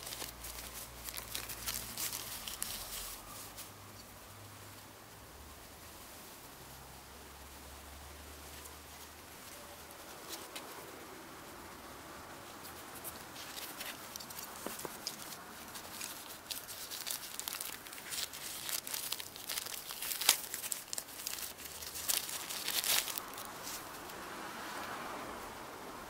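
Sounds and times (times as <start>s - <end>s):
paper rustling and crinkling: 0.0s - 3.8s, 8.6s - 10.9s, 12.6s - 24.2s
sharp crackles: 0.0s - 3.8s, 12.6s - 24.2s.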